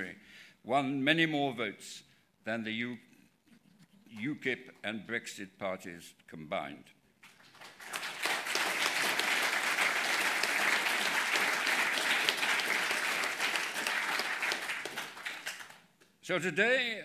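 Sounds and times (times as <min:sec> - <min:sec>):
audience applauding: 0:07.3 - 0:15.9.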